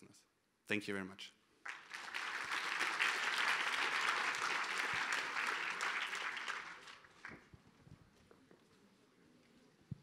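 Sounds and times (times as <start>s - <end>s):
audience applauding: 1.7s - 7.5s.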